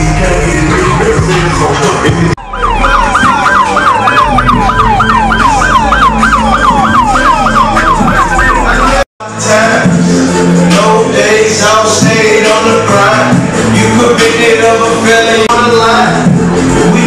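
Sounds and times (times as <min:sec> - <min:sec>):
music: 0:00.0 - 0:17.0
steady deep bass: 0:00.0 - 0:17.0
yelp siren wailing: 0:00.6 - 0:09.1.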